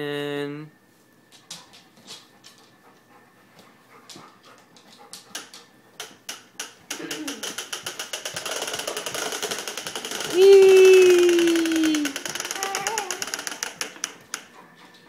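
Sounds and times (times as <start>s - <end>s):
push-walker toy clicking on floor: 5.2s - 14.6s.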